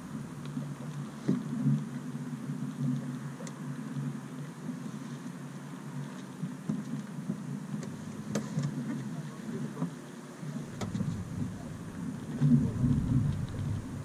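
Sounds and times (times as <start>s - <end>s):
wind buffeting microphone: 10.6s - 14.0s.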